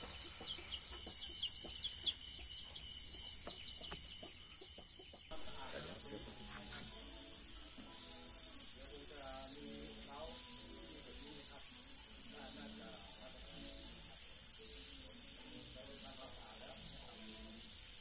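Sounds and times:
chicks peeping: 0.0s - 5.2s
crickets chirping: 0.0s - 18.0s.

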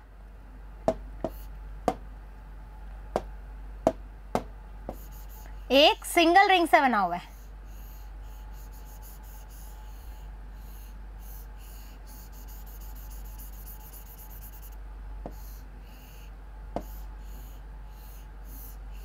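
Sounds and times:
scratchy pen strokes: 4.9s - 5.6s, 7.3s - 14.8s.

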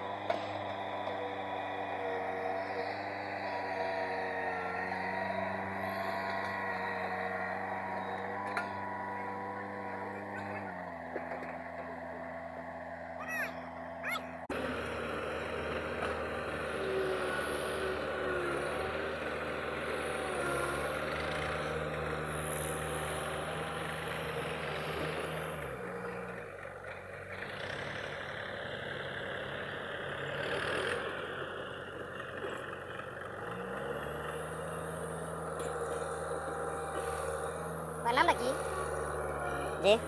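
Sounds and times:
excavator diesel engine running: 0.0s - 40.0s.

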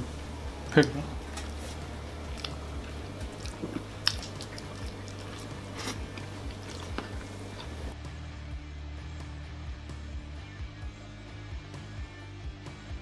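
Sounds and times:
man chewing food: 0.0s - 8.0s
wet squishing: 0.0s - 8.0s
lip smacks: 0.3s - 8.0s
small mouth clicks: 0.7s - 8.0s.

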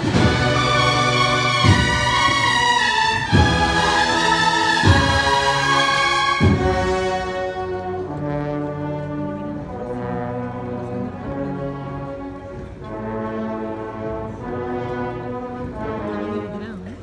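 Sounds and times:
bugle and drum band march: 0.0s - 17.0s.

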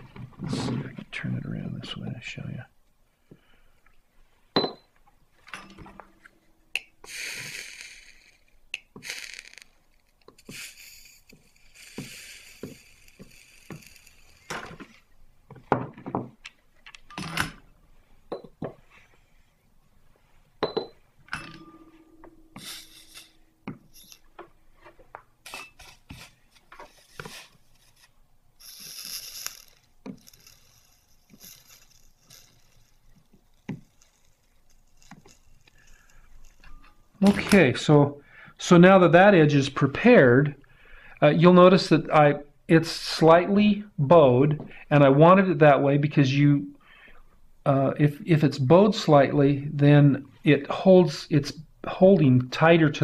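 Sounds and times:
metal tools clinking: 5.4s - 6.3s
short hisses: 7.1s - 8.3s.

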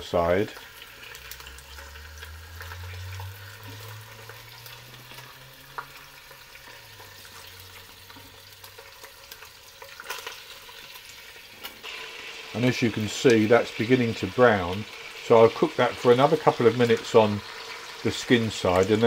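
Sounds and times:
chicken sizzling in hot oil: 0.0s - 19.0s.

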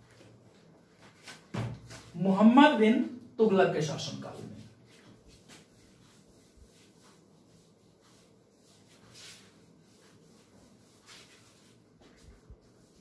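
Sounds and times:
duster wiping whiteboard: 3.9s - 13.0s.

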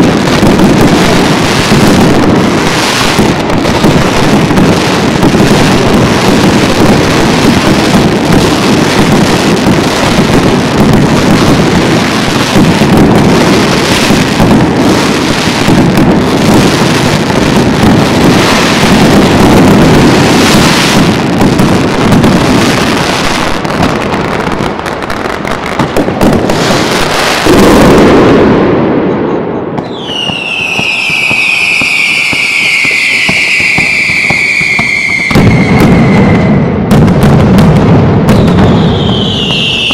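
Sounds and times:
fireworks bangs and crackles: 0.0s - 39.9s
long high falling whistle: 29.8s - 36.7s, 38.4s - 39.9s.

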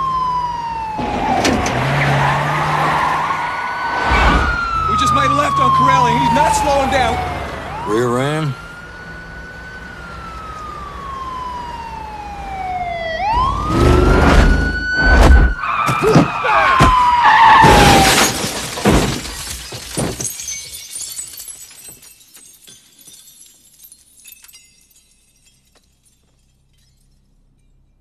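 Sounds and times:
police siren wailing: 0.0s - 18.5s
car collision crashes: 13.7s - 22.0s.

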